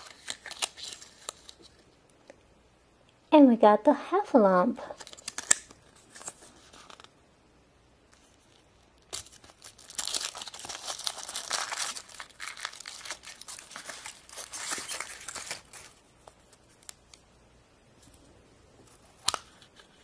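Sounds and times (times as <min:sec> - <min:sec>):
foil wrapper crinkling and tearing: 0:00.0 - 0:01.8, 0:05.0 - 0:07.2, 0:08.2 - 0:17.2.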